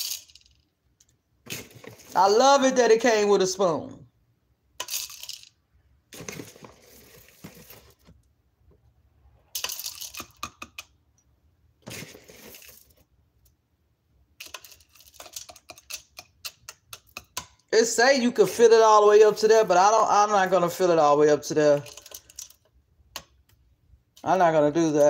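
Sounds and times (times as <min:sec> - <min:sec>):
coffee beans clattering: 0:00.0 - 0:00.6, 0:11.9 - 0:13.0, 0:14.4 - 0:17.4.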